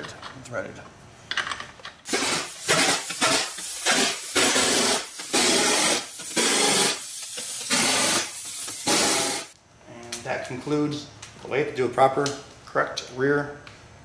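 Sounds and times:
impact wrench bursts: 0:02.0 - 0:09.6.

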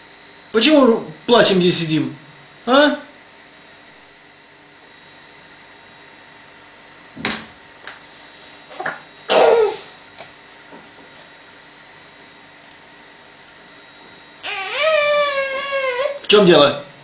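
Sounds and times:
baby whimpering: 0:08.7 - 0:09.9, 0:14.4 - 0:16.2.

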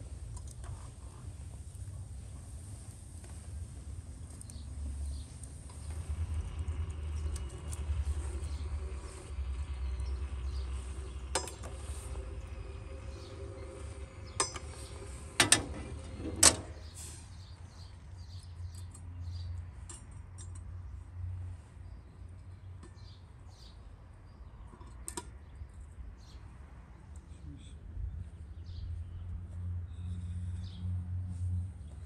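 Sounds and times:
steady low rumble: 0:00.0 - 0:18.0
iron tongs clinking on metal: 0:14.4 - 0:14.7.

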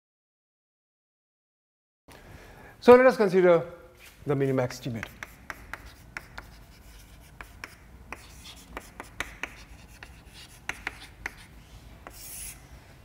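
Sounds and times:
chalk writing on a chalkboard: 0:04.8 - 0:12.6.

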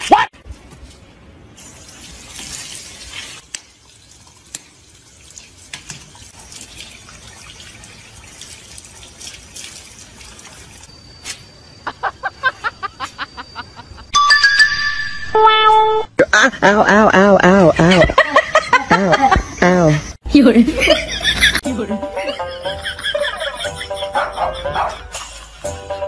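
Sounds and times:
water splashing on concrete: 0:01.6 - 0:10.9
water drips: 0:01.9 - 0:11.0.

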